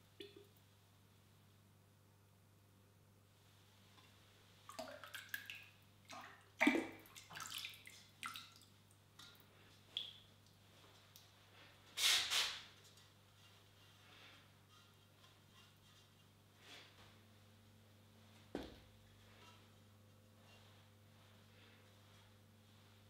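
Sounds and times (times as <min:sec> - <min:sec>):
glaze splashing and dripping: 0:04.7 - 0:11.4.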